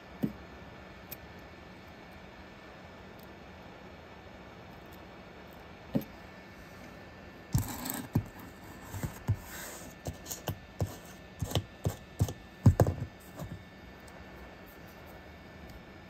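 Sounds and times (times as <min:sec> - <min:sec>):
soldering iron scraping hiss: 0:06.5 - 0:15.3
soldering iron tapping plastic: 0:10.1 - 0:13.6.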